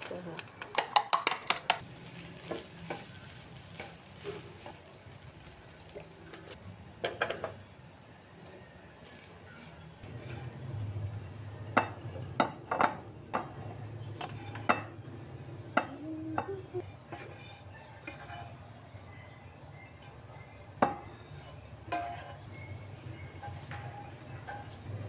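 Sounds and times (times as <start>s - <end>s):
spatula scraping a frying pan: 9.0s - 11.3s, 13.3s - 14.9s, 17.0s - 19.3s, 20.0s - 25.0s.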